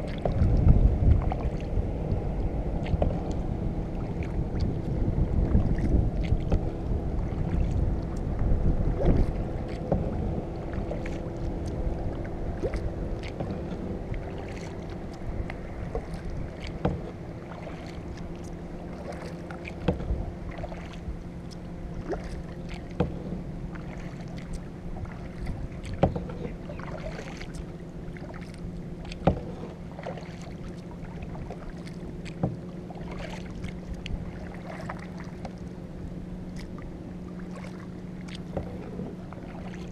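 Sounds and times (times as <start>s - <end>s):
paddle splash: 0.0s - 39.9s
water washing and dripping: 5.4s - 35.6s.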